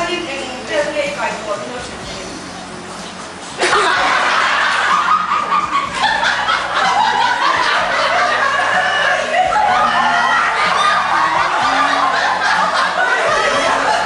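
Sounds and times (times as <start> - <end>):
group of people laughing: 3.6 - 14.0.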